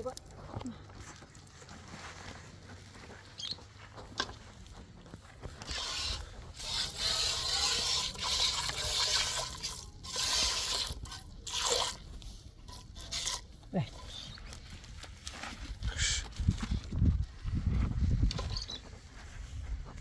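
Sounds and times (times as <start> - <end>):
milk streams hissing into a pail: 5.7 - 12.0.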